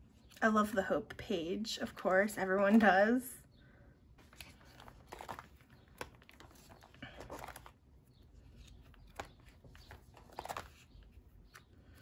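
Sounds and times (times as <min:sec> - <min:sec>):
plastic sleeves rustling: 0:04.2 - 0:12.0.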